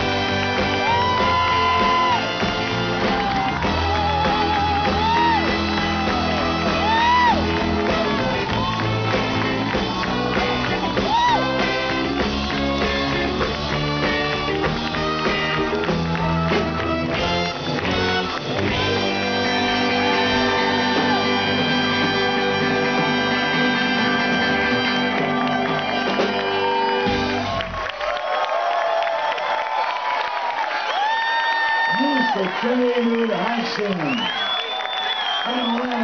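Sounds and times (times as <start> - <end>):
live band playing: 0.0 - 28.2.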